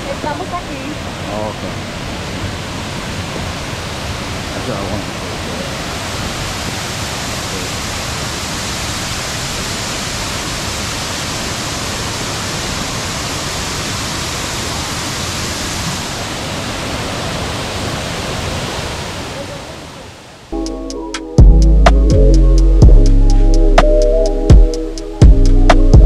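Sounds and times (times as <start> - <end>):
waterfall rushing: 0.0 - 20.6.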